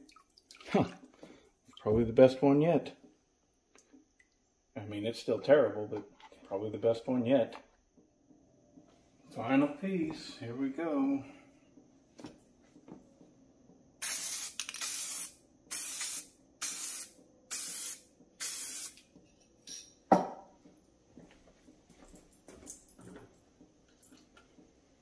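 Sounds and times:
aerosol can spraying: 0:14.0 - 0:19.0.

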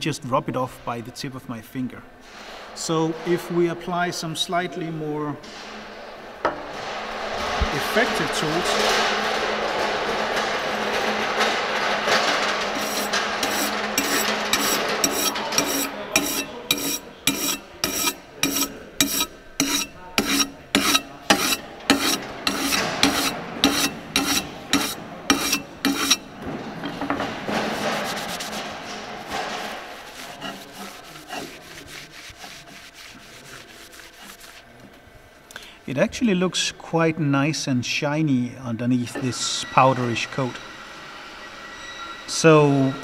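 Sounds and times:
scrubbing steel with abrasive: 0:11.8 - 0:34.7.

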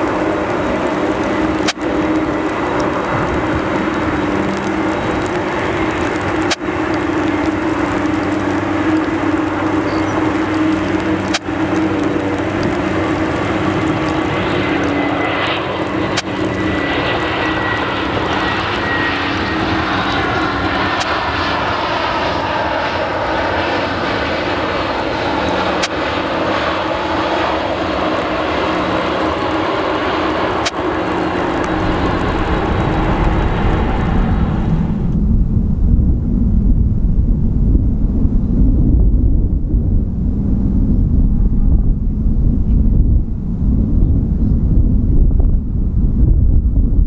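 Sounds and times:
jet engines droning: 0:00.0 - 0:47.0
sharp clicks: 0:09.9 - 0:13.4.

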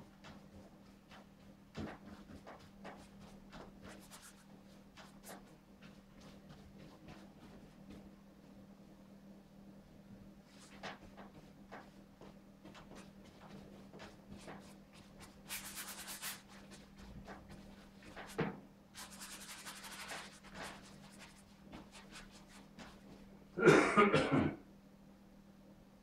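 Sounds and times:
paintbrush scrubbing on canvas: 0:00.1 - 0:07.6, 0:12.8 - 0:23.2.

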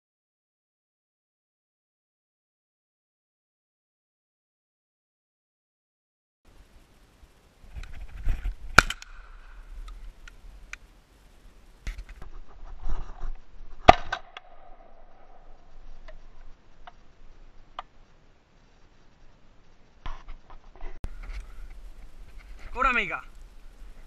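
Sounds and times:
gun handling clicks and rustling: 0:07.8 - 0:09.2
shotgun shots: 0:08.8 - 0:09.2.

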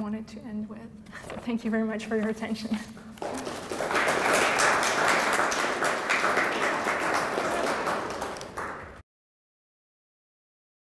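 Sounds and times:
audience applauding: 0:03.2 - 0:09.0.

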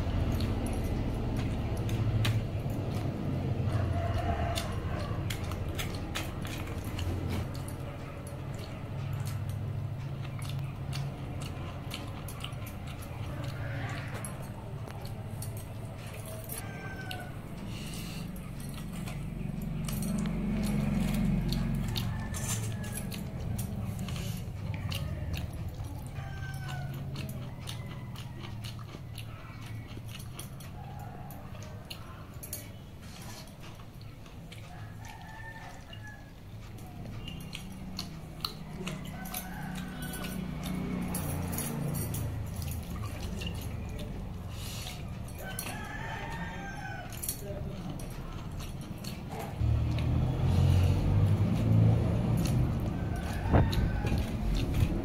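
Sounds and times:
person chewing: 0:00.0 - 0:55.0.

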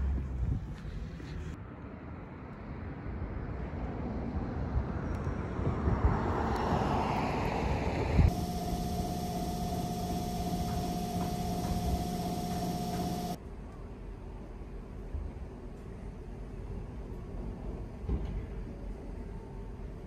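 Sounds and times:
steady mechanical hum: 0:08.3 - 0:20.0.

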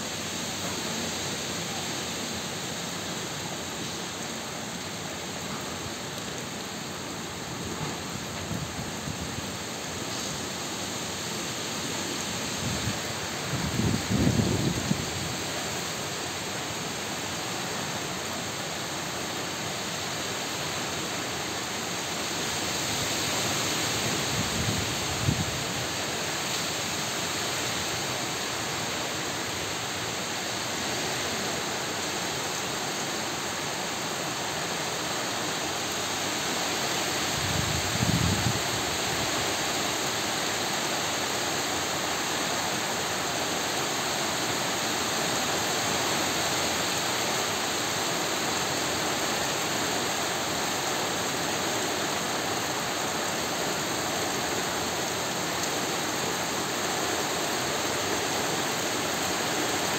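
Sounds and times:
heavy rain on foliage: 0:00.0 - 0:59.9.

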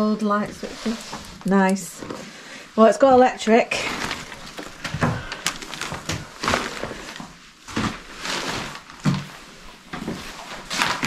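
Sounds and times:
footsteps on rubble: 0:03.0 - 0:11.0.

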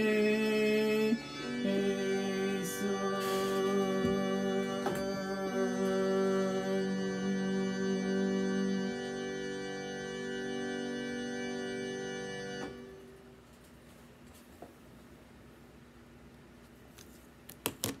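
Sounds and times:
digital keyboard sustained chord: 0:00.0 - 0:13.4.

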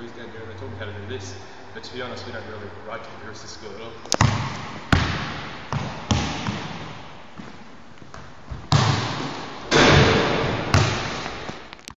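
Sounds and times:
ball hitting backboard and rim: 0:04.1 - 0:07.2, 0:08.5 - 0:11.7
basketball bouncing on wooden floor: 0:04.2 - 0:07.5, 0:08.1 - 0:11.6.

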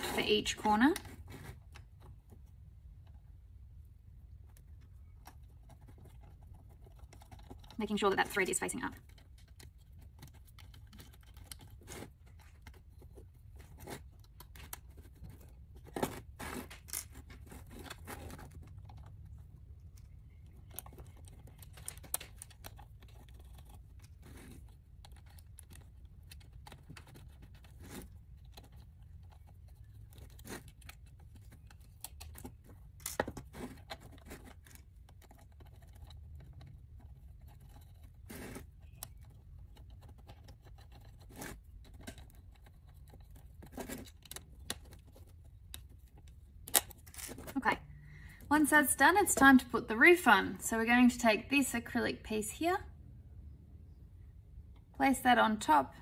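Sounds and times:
small parts clicking and scraping: 0:04.4 - 0:47.6.

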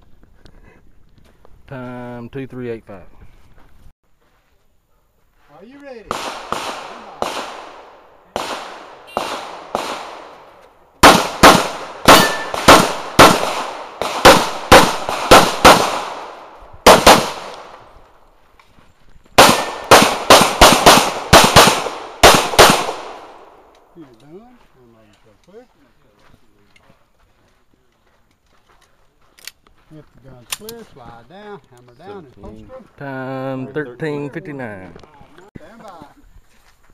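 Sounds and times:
pistol shots echoing: 0:06.1 - 0:17.9, 0:19.4 - 0:23.8.

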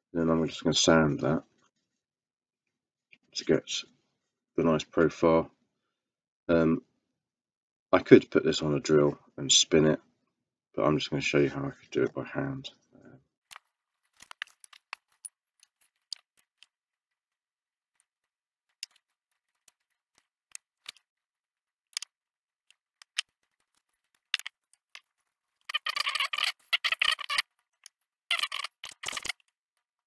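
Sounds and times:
clicks of balsa parts handled: 0:23.0 - 0:25.1.

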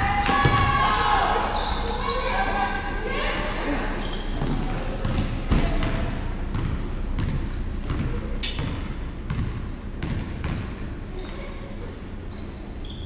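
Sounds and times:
sneakers thudding and squeaking: 0:00.3 - 0:02.6, 0:04.0 - 0:13.0
basketball bouncing on hardwood: 0:04.4 - 0:10.6.

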